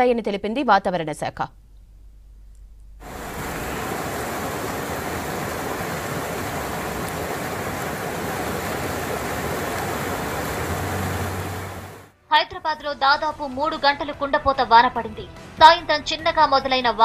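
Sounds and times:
water rushing on flooded street: 3.0s - 12.1s.

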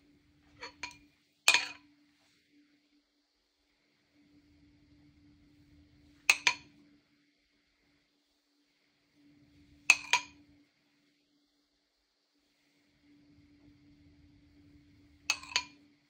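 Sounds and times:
metal teaspoon clinking against bowl: 6.3s - 6.6s, 15.3s - 15.8s.

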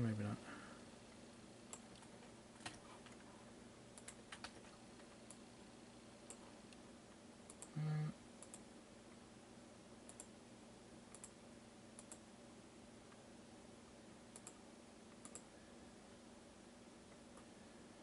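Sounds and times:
short low buzzy tone: 7.8s - 8.2s
mouse and keyboard clicks: 14.4s - 14.6s, 15.2s - 15.5s.

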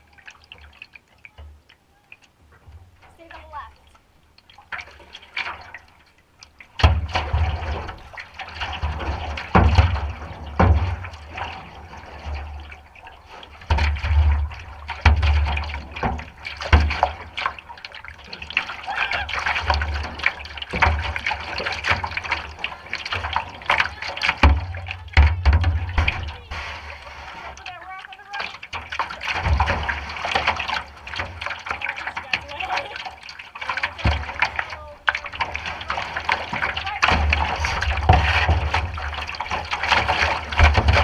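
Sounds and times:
low thumps: 19.5s - 27.4s.

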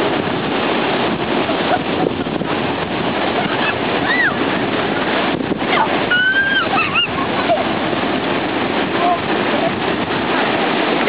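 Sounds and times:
surf breaking on a beach: 0.0s - 11.0s
wind buffeting microphone: 0.0s - 11.0s
brief high cry: 4.0s - 4.4s, 6.1s - 7.1s.

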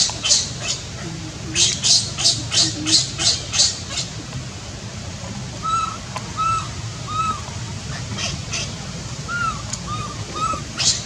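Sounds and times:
baby monkey cooing: 0.2s - 4.1s.

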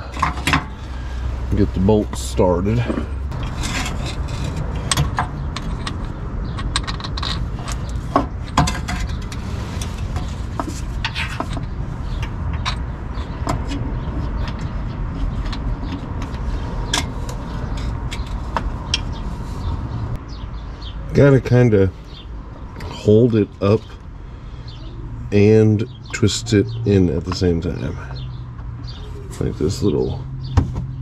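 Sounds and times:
steady low rumble: 0.0s - 26.0s
metal bolts clinking: 2.8s - 9.4s.

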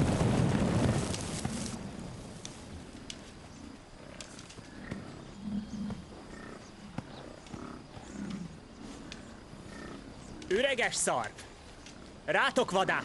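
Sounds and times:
bison grunting: 4.0s - 10.4s.

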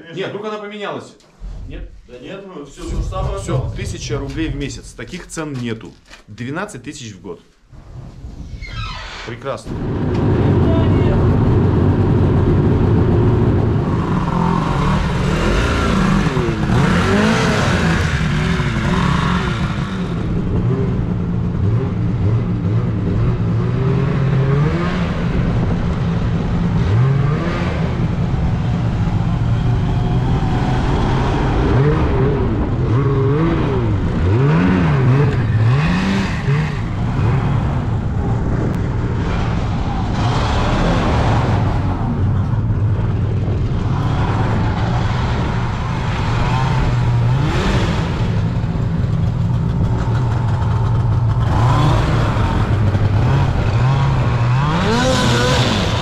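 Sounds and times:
snowmobile engines revving: 9.4s - 56.0s.

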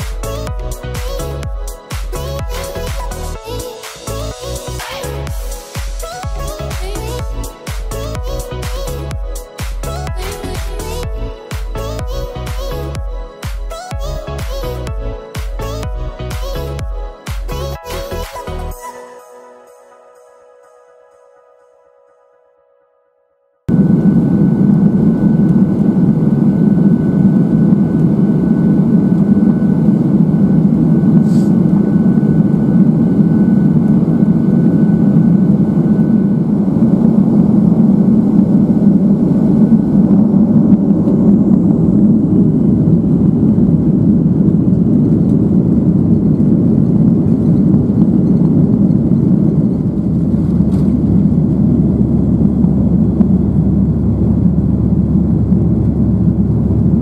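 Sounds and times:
deep rumble: 23.7s - 57.0s
jet engines at takeoff thrust: 23.7s - 57.0s.

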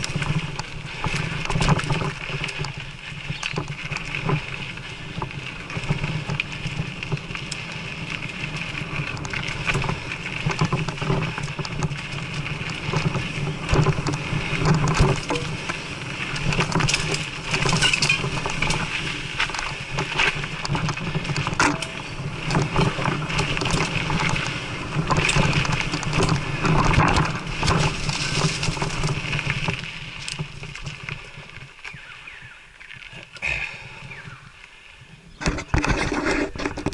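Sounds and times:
bike rattling over bumps: 0.0s - 36.9s
bike tyres on dirt and gravel: 0.0s - 36.9s.

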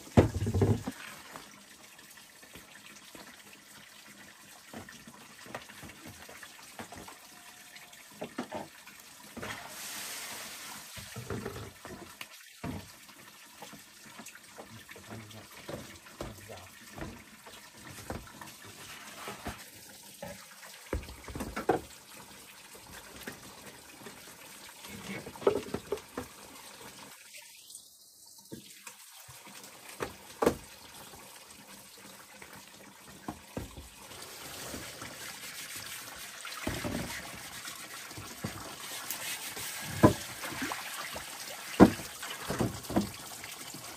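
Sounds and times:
water splashing into a basin: 33.0s - 43.9s.

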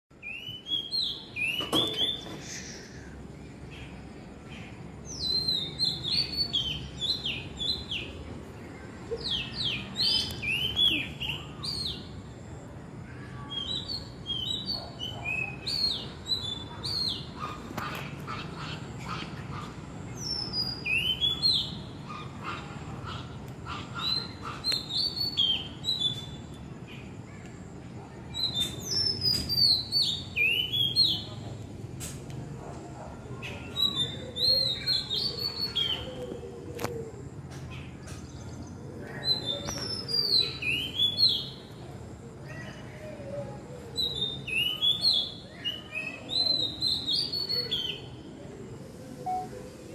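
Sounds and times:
bird singing whistled notes: 49.2s - 49.6s.

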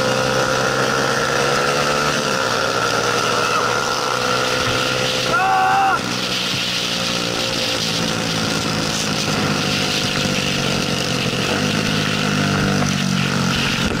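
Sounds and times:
motorcycle engine running: 0.0s - 14.0s
wind rushing over microphone: 7.4s - 14.0s.

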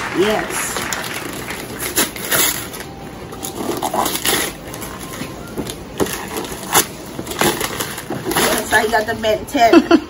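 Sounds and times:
wrapping paper tearing and crumpling: 0.8s - 9.1s.

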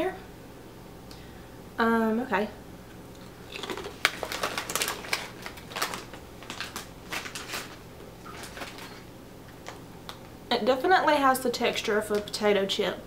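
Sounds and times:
chip crunching: 3.2s - 9.0s.

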